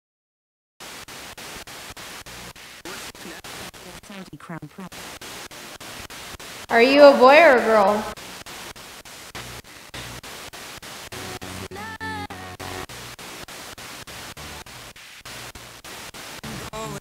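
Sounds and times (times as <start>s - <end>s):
snatch of broadcast sound: 0.8s - 11.2s
chopped static hiss: 0.8s - 17.0s.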